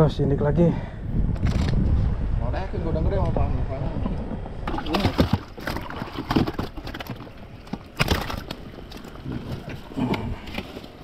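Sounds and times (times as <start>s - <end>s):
fish knocking and slapping: 4.6s - 10.8s.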